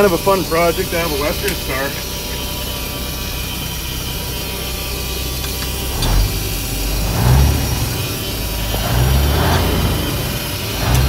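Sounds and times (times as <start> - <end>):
diesel truck engine idling: 0.0 - 11.0.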